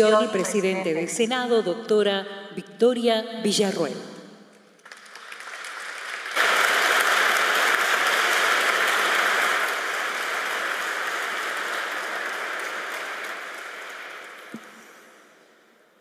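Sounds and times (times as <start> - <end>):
audience applauding: 4.8 - 15.4.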